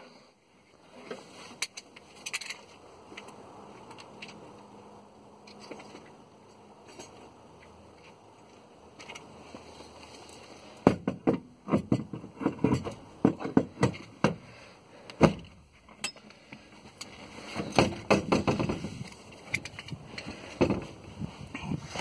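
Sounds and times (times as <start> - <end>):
seat knocking and clicking into place: 17.6 - 18.9.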